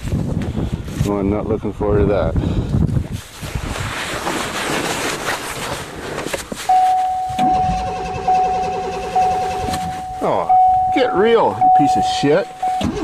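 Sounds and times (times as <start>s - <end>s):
wind noise: 0.0s - 13.0s
high electronic warning tone: 6.7s - 13.0s
starter cranking engine: 7.4s - 9.9s.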